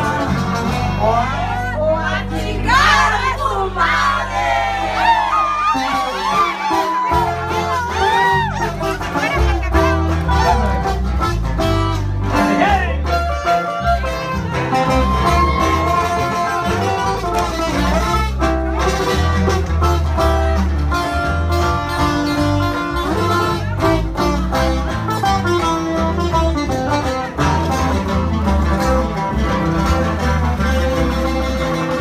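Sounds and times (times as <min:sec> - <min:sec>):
plucked guitar lines: 0:00.0 - 0:04.2, 0:05.0 - 0:32.0
steady bass: 0:00.0 - 0:32.0.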